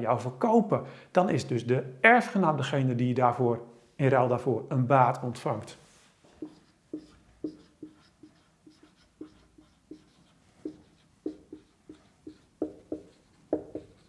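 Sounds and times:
marker squeaking on whiteboard: 6.3s - 14.0s.

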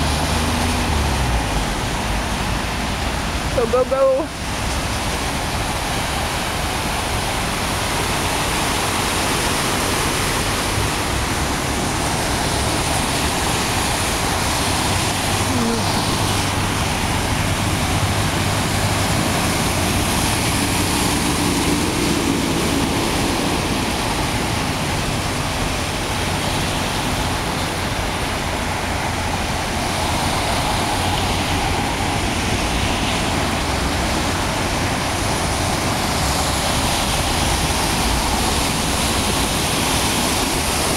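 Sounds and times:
rain and rushing floodwater: 0.0s - 40.9s.

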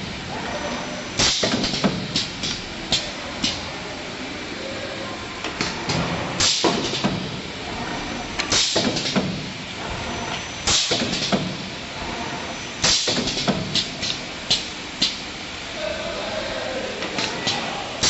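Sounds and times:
machine hum: 0.0s - 18.0s.

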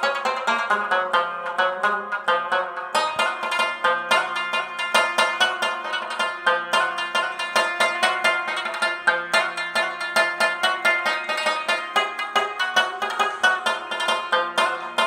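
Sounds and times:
plucked string instrument: 0.0s - 15.0s.

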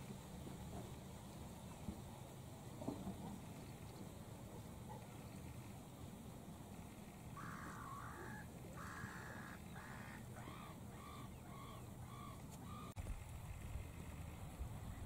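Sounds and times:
birds cawing: 7.4s - 13.0s.

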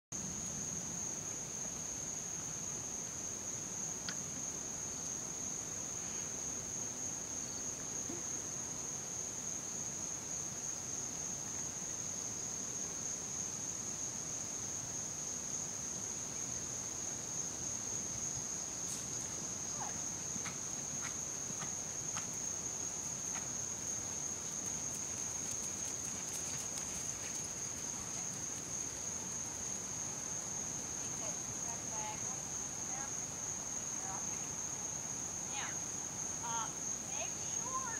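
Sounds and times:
insects droning: 0.2s - 37.9s
faint ticks: 4.0s - 4.2s.

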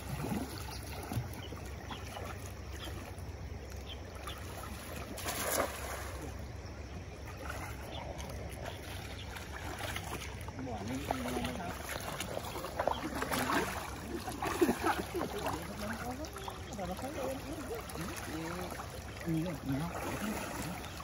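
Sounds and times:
cast net splashing into water: 0.0s - 1.5s, 4.2s - 6.4s, 8.7s - 21.0s
shallow river flowing: 0.0s - 21.0s.

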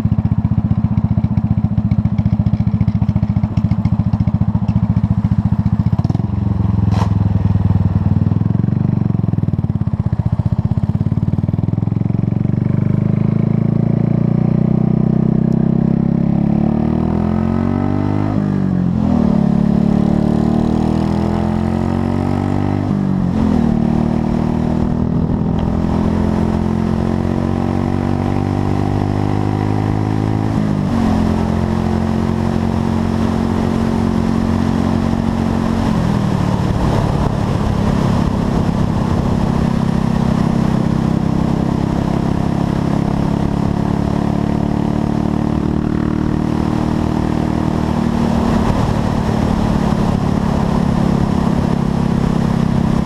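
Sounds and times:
motorcycle engine accelerating: 0.0s - 53.0s.

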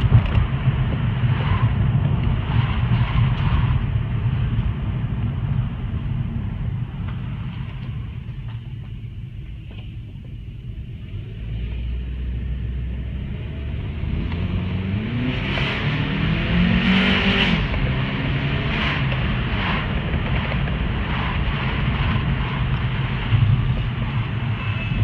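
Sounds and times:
rushing air and wind: 0.0s - 10.8s, 13.8s - 25.0s
car engine accelerating: 10.8s - 25.0s.

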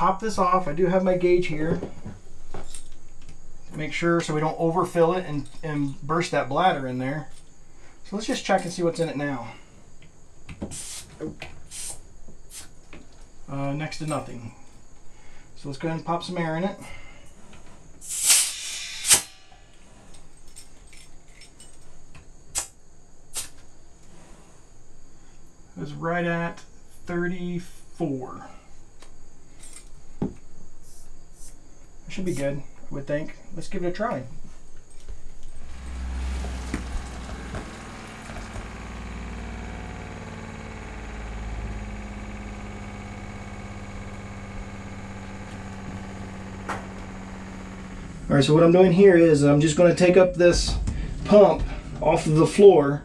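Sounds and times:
compressed air hissing: 10.7s - 12.8s, 18.0s - 19.8s, 22.5s - 24.6s
loud burst of air: 10.7s - 12.8s, 18.0s - 19.8s, 23.3s - 23.6s
metallic clicking and jingling: 20.0s - 22.0s
water pump humming: 35.4s - 49.2s.

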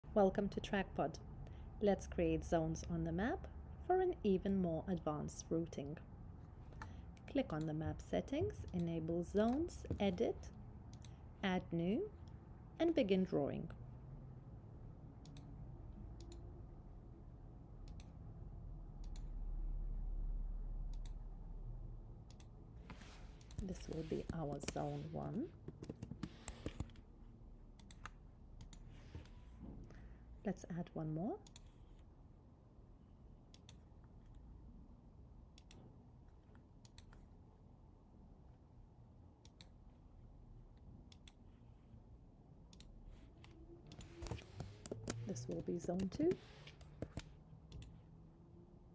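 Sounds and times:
computer mouse clicking: 10.9s - 11.2s, 15.2s - 15.5s, 16.2s - 16.4s, 17.8s - 18.2s, 19.0s - 19.3s, 20.9s - 21.2s, 22.3s - 22.5s, 23.4s - 27.0s, 27.8s - 28.9s, 31.4s - 31.8s, 33.5s - 34.4s, 35.5s - 35.9s, 36.5s - 37.2s, 39.4s - 39.8s, 41.1s - 41.4s, 42.7s - 48.0s.

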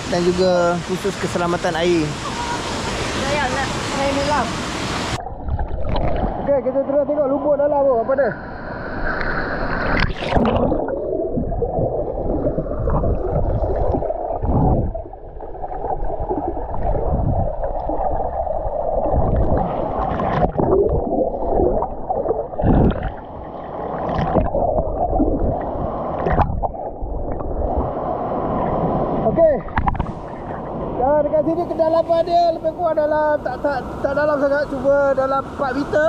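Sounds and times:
water splash: 2.2s - 6.6s, 9.0s - 30.7s
muffled underwater gurgling: 10.0s - 23.3s.

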